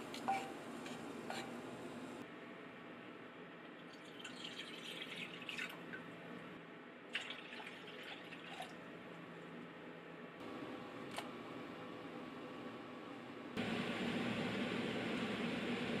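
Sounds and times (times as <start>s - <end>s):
water pouring into a saucepan: 3.9s - 5.9s, 7.2s - 8.8s.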